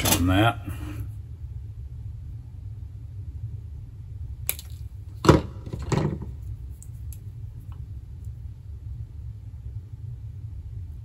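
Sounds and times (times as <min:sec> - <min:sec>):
steady low hum: 0:00.0 - 0:11.0
thump and tool handling: 0:05.2 - 0:06.3.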